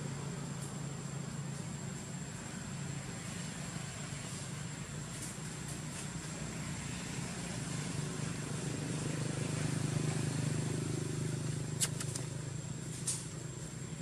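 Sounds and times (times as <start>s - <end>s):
vehicle engine passing: 5.9s - 13.6s
sharp clicks: 11.8s - 12.4s.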